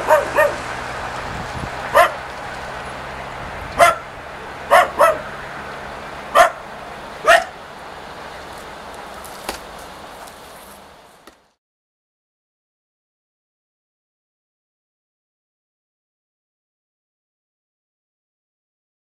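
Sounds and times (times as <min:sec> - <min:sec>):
dog barking: 0:00.0 - 0:00.7, 0:01.9 - 0:02.2, 0:03.8 - 0:04.1, 0:04.7 - 0:05.3, 0:06.3 - 0:07.6
passenger train moving: 0:00.0 - 0:11.4.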